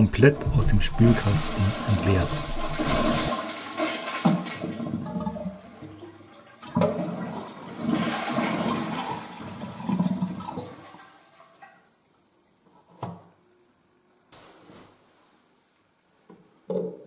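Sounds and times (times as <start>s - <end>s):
toilet cistern water rushing: 0.0s - 11.2s.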